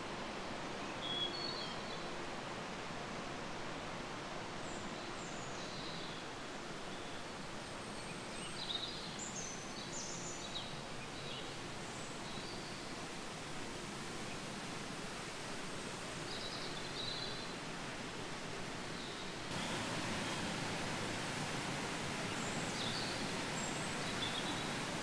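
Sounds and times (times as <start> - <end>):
rushing water of a stream: 0.0 - 25.0
birds chirping: 19.5 - 25.0.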